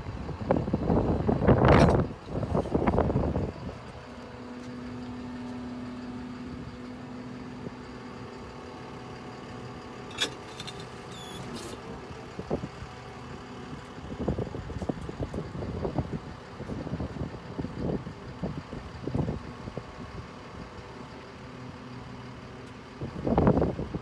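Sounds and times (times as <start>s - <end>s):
truck engine idling: 0.0s - 24.0s
short high squeak: 10.1s - 11.8s.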